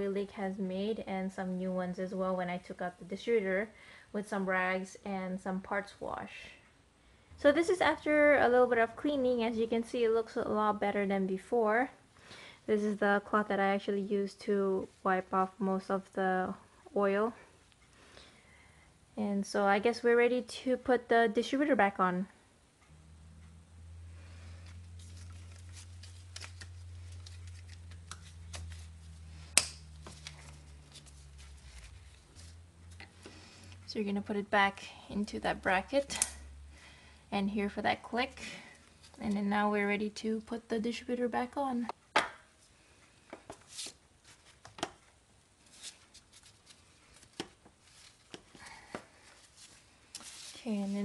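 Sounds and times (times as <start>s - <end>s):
steady low hum: 0.0s - 51.0s
glove rustles: 24.4s - 33.2s, 45.6s - 51.0s.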